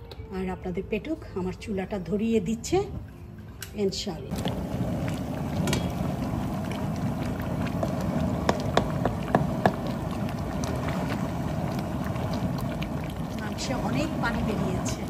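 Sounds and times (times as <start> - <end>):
gas burner flame rushing: 4.3 - 15.0.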